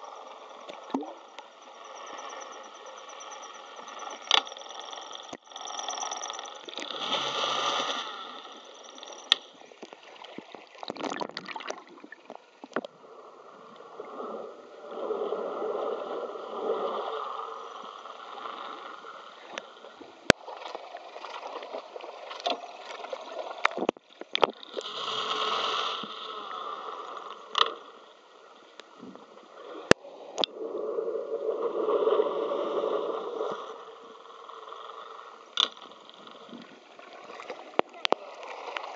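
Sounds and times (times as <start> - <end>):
underwater propeller churning water: 0.0 - 12.8.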